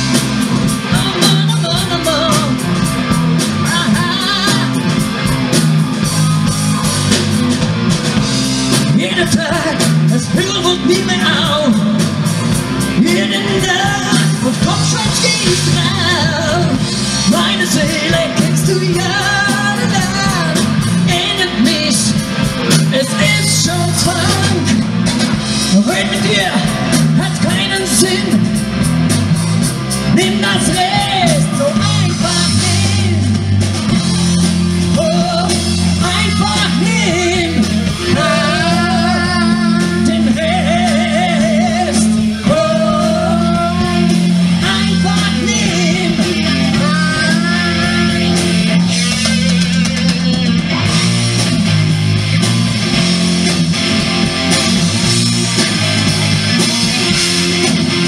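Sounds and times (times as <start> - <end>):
bass guitar: 0.0 - 58.0
drum kit: 0.0 - 58.0
electric guitars: 0.0 - 58.0
person singing: 0.7 - 2.9, 3.6 - 5.0, 8.9 - 12.2, 12.8 - 24.9, 30.1 - 33.6, 34.8 - 50.6.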